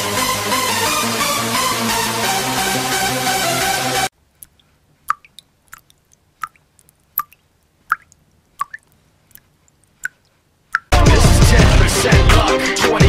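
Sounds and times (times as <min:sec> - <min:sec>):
small wet pops: 0:04.3 - 0:10.9
techno music: 0:10.9 - 0:12.7.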